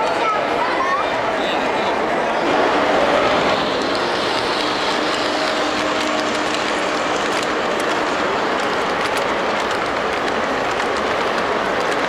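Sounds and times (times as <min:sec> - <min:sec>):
model train wheels rattling: 0:03.4 - 0:12.0
wheels clicking over rail joints: 0:03.6 - 0:12.0.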